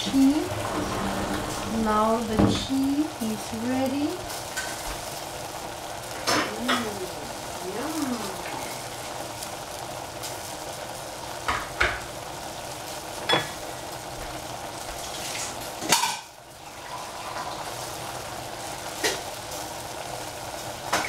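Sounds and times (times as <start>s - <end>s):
vegetables sizzling in a saucepan: 0.0s - 21.0s.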